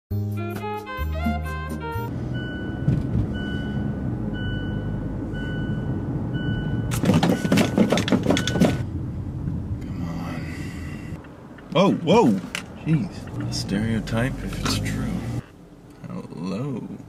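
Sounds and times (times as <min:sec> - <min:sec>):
engine and road rumble: 0:00.7 - 0:17.0
seat-belt warning beeps: 0:02.3 - 0:08.8.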